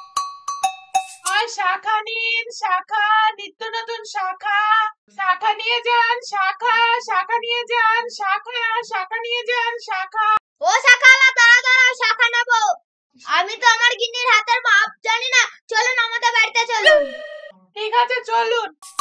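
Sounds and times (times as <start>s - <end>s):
high-pitched voice singing: 16.8s - 17.6s.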